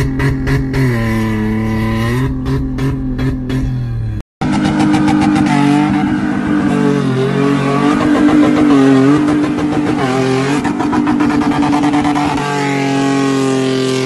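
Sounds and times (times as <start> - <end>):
pickup truck engine revving: 4.4 - 14.0.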